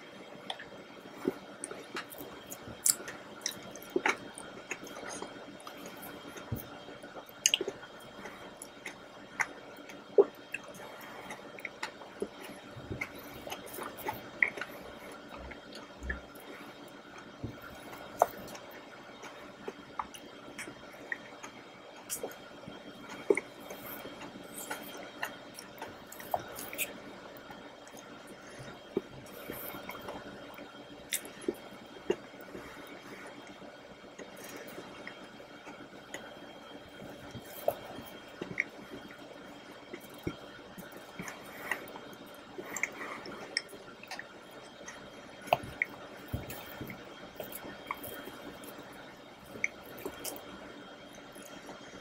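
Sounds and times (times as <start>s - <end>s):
wet chewing mouth sounds: 1.2s - 18.6s, 19.2s - 22.5s, 23.1s - 27.0s, 31.1s - 33.6s, 37.2s - 39.2s.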